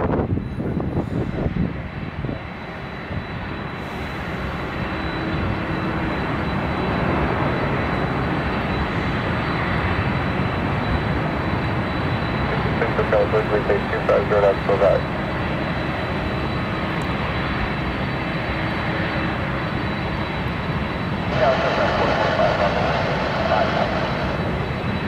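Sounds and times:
jet airliner engines rushing: 0.0 - 25.0.

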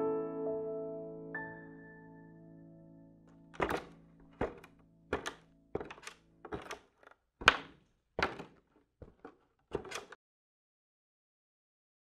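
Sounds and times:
hard clacking knocks: 3.6 - 10.2.

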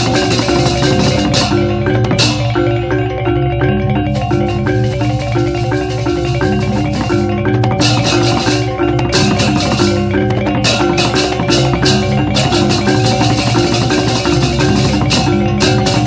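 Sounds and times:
sharp cymbal clashes: 0.0 - 3.0
gongs and metallophones ringing: 0.0 - 16.0.

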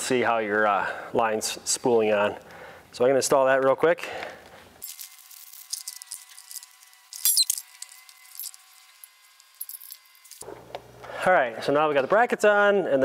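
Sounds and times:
clinking rattle: 9.6 - 10.1
metal tools clicking and clinking: 9.6 - 10.4.

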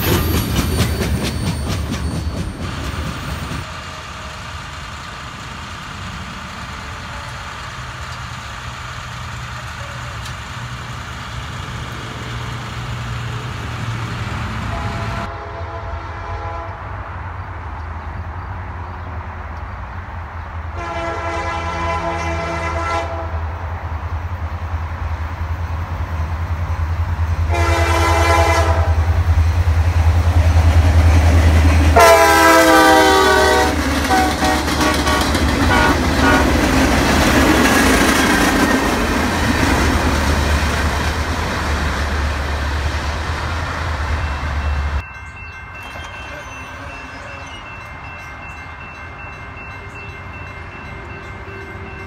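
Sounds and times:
freight cars rolling and clattering: 0.0 - 14.5, 43.6 - 48.3
diesel engine rumble: 2.0 - 15.3
locomotive air horn blasts: 14.7 - 16.9, 20.8 - 23.4, 27.5 - 29.2, 32.0 - 36.6.

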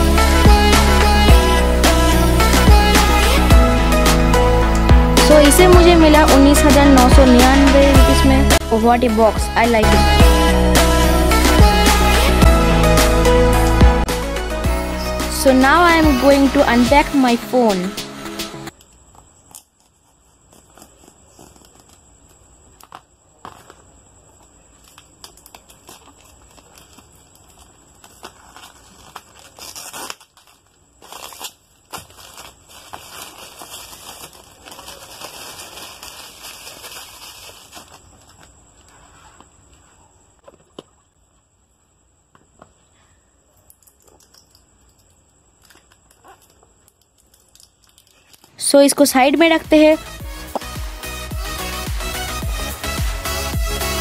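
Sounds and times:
cardboard and paper rustling: 19.4 - 39.9
packaging being handled: 24.7 - 39.4.

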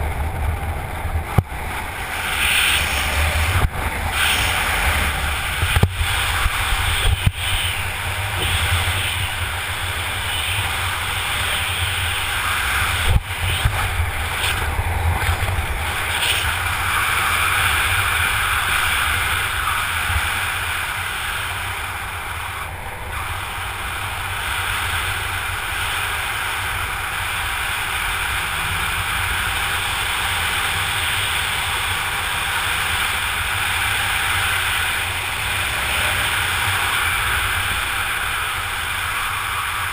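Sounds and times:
wind buffeting microphone: 0.0 - 23.4.

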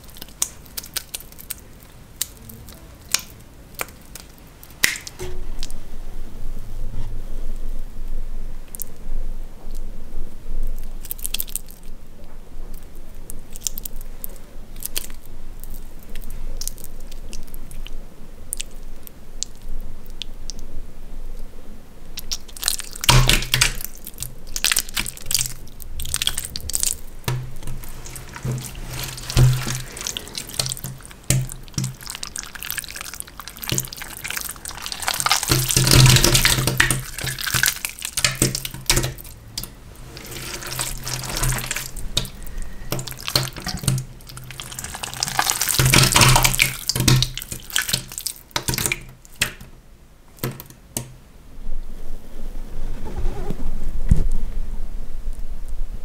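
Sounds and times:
jelly squelching between hands: 0.0 - 5.8, 22.2 - 49.6
sticky clicks and smacks: 28.4 - 39.7.

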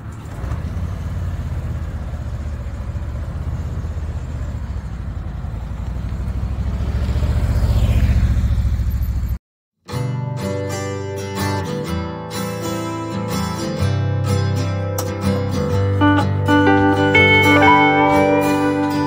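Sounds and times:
motorcycle engine passing by: 0.7 - 9.4.

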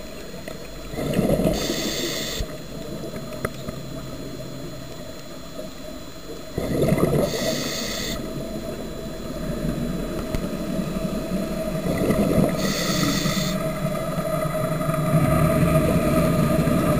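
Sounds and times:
exhaled air bubbling: 0.0 - 16.9
faint steady hum: 0.0 - 16.9
regulator hissing inhale: 1.4 - 2.6, 7.2 - 8.3, 12.4 - 13.7.

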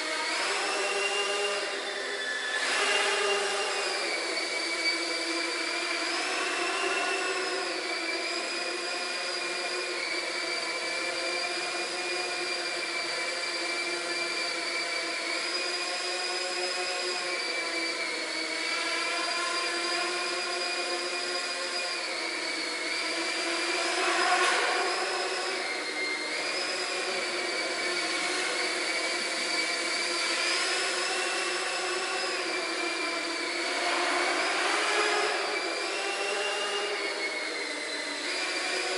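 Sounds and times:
drone propellers whining: 0.0 - 38.9.

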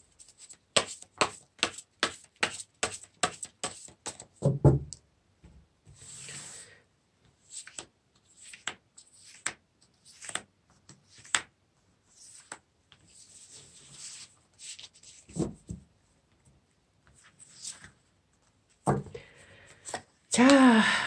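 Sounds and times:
cards sliding rustles: 7.4 - 11.5
cards snapping and tapping: 11.2 - 11.5.

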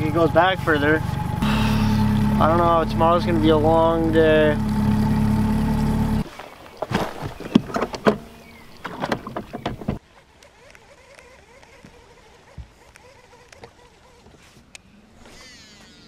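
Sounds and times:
outboard motor running: 0.0 - 14.6
gear knocking on aluminium boat: 7.3 - 10.0.

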